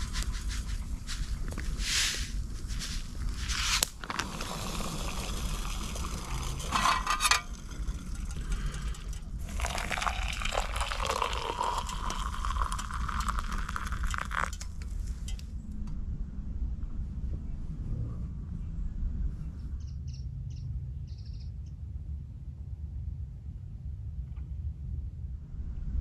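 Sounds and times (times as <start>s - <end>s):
foil pouch crinkling: 0.0s - 6.0s
water pouring into steel mug: 3.3s - 14.9s.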